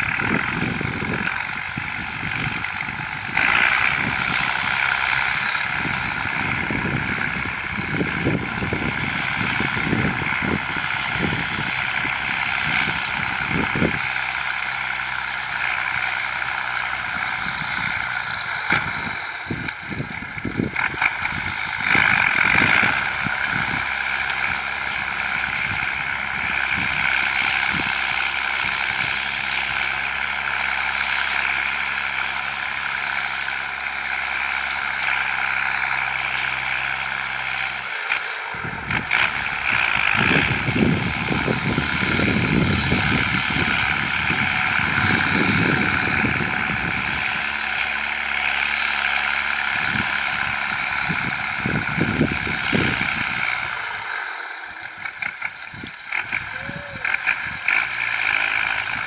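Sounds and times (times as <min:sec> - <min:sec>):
low gusty noise: 0:00.0 - 0:37.8
tractor diesel engine under load: 0:00.0 - 0:59.0.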